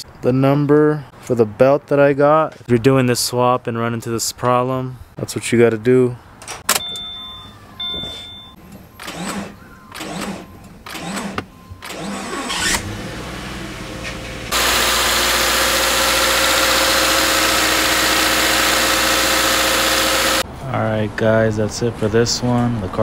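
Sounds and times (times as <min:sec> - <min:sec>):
ignition cycling sounds: 0:06.7 - 0:20.4
car engine starting and idling: 0:08.6 - 0:20.4.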